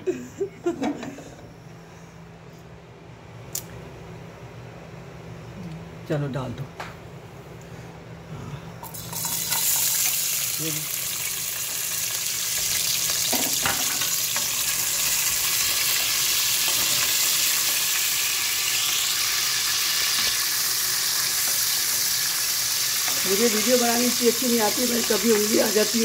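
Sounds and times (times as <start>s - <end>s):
garlic sizzling in hot oil: 8.8s - 26.0s.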